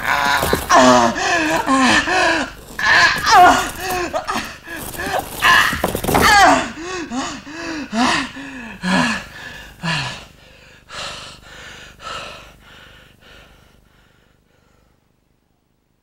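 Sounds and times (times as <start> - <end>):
man gasping breaths: 0.0 - 3.0, 6.8 - 15.0
man groaning with effort: 0.0 - 10.0.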